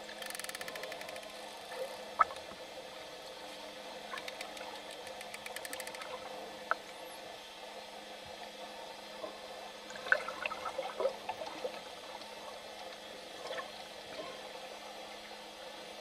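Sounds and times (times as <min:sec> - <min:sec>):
faint hum: 0:00.0 - 0:16.0
underwater water noise: 0:00.0 - 0:16.0.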